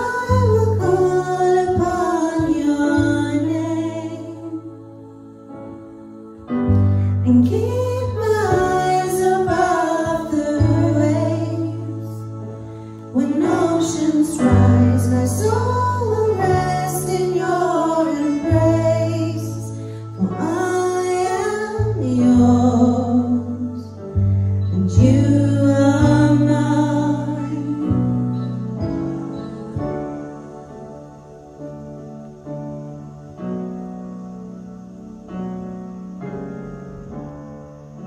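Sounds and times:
women singing a worship song: 0:00.0 - 0:31.0
bass line: 0:13.2 - 0:30.6.

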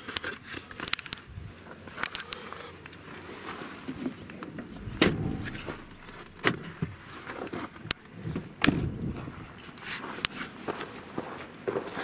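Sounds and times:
sharp knocks: 0:04.6 - 0:06.8.

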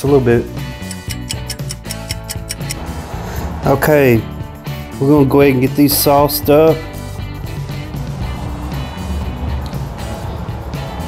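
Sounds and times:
background guitar music: 0:00.0 - 0:11.0
clock ticking rapidly: 0:00.8 - 0:02.8.

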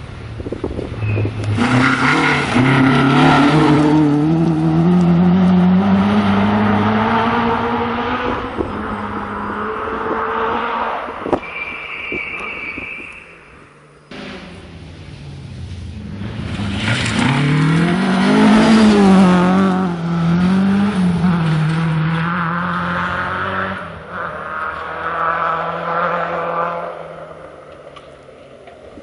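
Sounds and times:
rally car engine revving: 0:00.4 - 0:11.2, 0:14.1 - 0:27.8.

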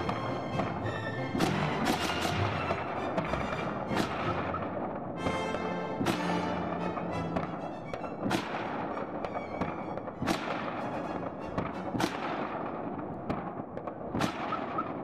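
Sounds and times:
distant firework pops and crackles: 0:00.0 - 0:15.0
loud firework bangs with echo: 0:00.0 - 0:15.0.

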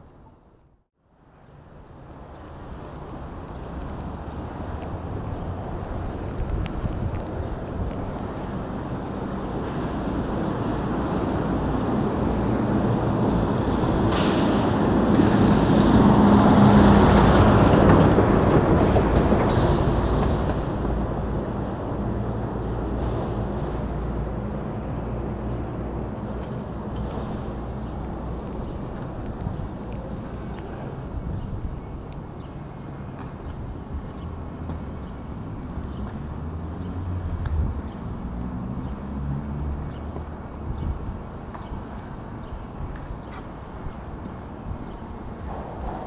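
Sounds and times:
road and wind rumble: 0:00.0 - 0:46.0
short sharp hiss: 0:14.1 - 0:14.8.

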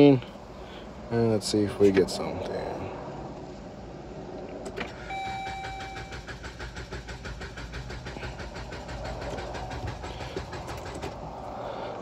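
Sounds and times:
engine cranking without starting: 0:04.6 - 0:12.0.

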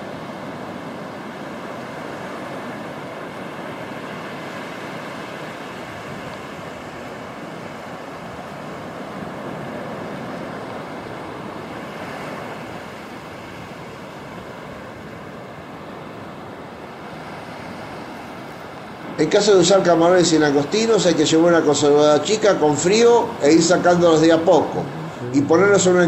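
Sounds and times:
surf breaking on beach: 0:00.0 - 0:26.0.

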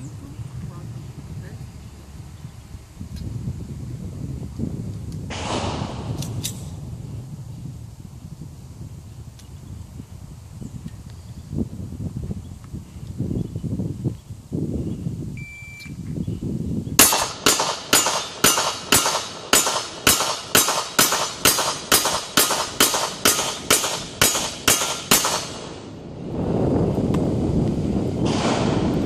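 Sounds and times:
short beep: 0:15.4 - 0:16.0
handgun shots in rapid string: 0:17.0 - 0:25.7.

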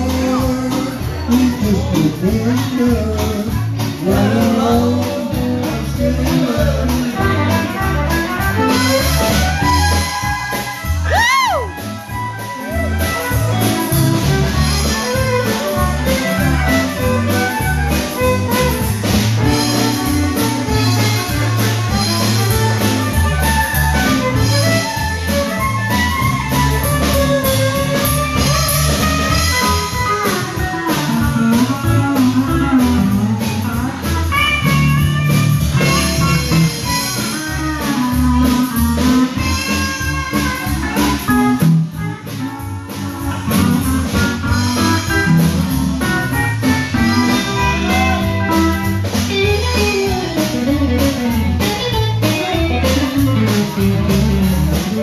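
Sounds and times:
live country band playing: 0:00.0 - 0:55.0.

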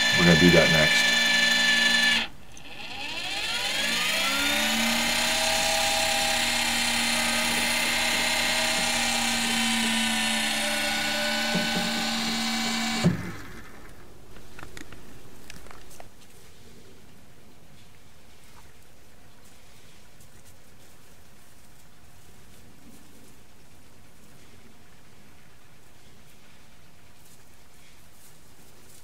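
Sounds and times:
small motor whining: 0:00.0 - 0:14.1.

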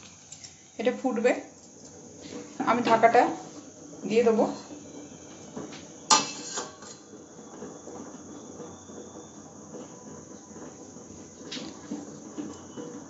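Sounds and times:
pot boiling hiss: 0:00.0 - 0:13.0
metal lid clanking onto pot: 0:06.1 - 0:07.0.

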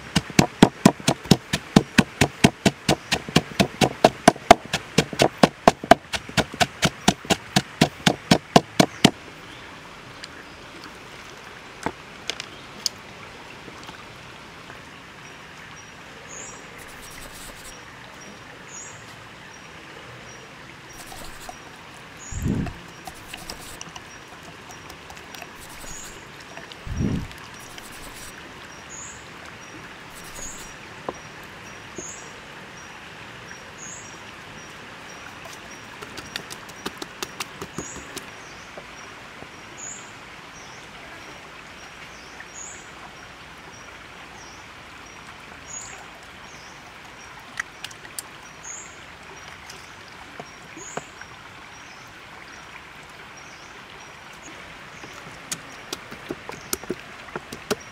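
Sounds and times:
steady hiss: 0:25.5 - 0:26.2, 0:26.9 - 0:28.4, 0:30.1 - 0:30.7.

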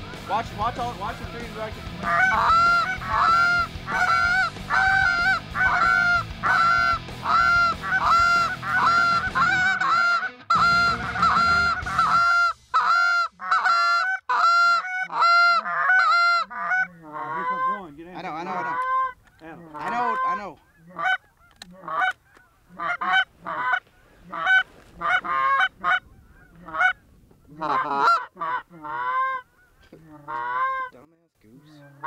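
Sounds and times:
goose honking: 0:01.5 - 0:31.0.

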